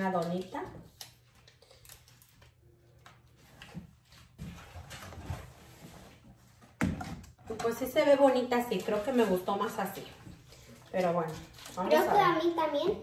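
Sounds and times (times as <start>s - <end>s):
rustling of plastic packets: 10.9s - 12.1s.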